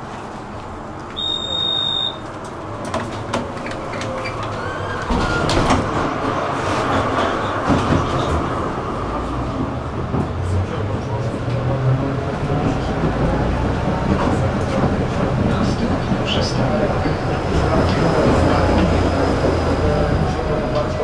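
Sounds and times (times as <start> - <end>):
tram rumbling: 0.0 - 21.0
tram door-warning beep: 1.2 - 2.4
wheels rattling and clicking on track: 2.1 - 21.0
tram doors knocking shut: 2.8 - 8.6.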